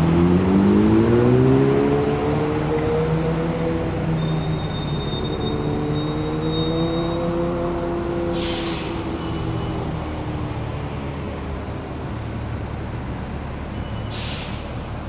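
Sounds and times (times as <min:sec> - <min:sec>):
vehicle engine pulling away: 0:00.0 - 0:15.0
short sharp hiss: 0:08.3 - 0:09.2, 0:14.1 - 0:14.8.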